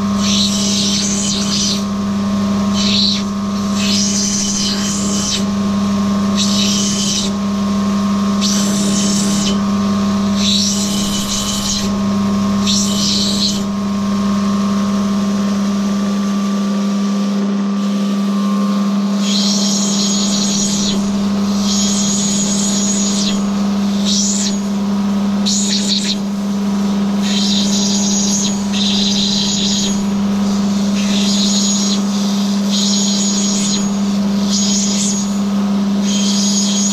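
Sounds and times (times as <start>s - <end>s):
electric motor humming: 0.0s - 36.9s
hissing grinding strokes: 2.7s - 5.5s, 6.3s - 7.4s, 8.3s - 9.7s, 10.3s - 14.0s, 27.2s - 35.3s.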